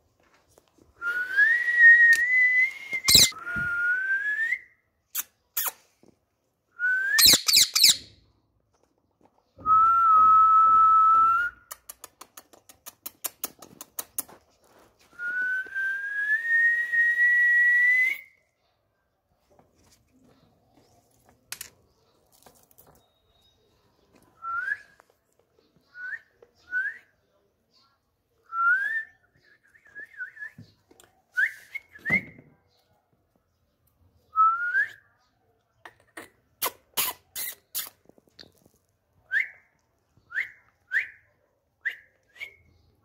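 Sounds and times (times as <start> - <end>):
person whistling long notes: 1.0 - 4.7.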